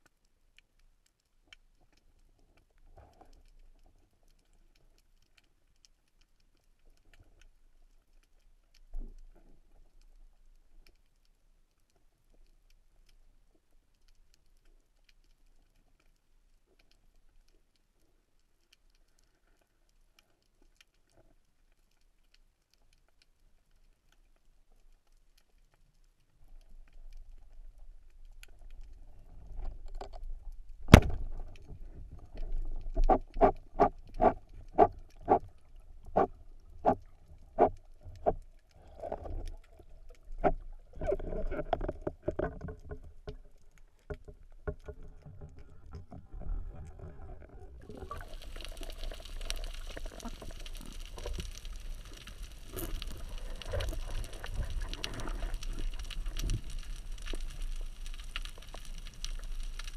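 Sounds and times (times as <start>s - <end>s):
speargun firing underwater: 30.9s - 31.3s.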